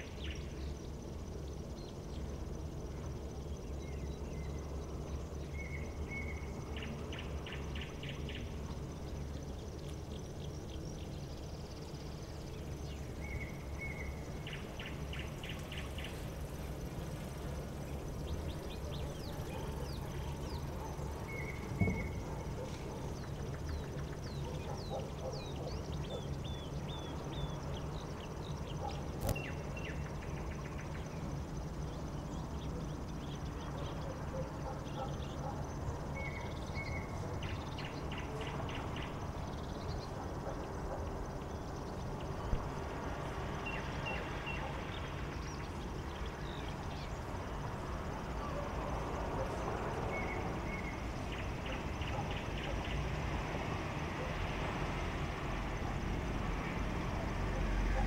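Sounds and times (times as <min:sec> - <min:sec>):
birds chirping and trilling: 0:00.0 - 0:42.6, 0:43.6 - 0:53.1
steady low hum: 0:00.0 - 0:52.7
vehicle approaching: 0:47.2 - 0:58.0.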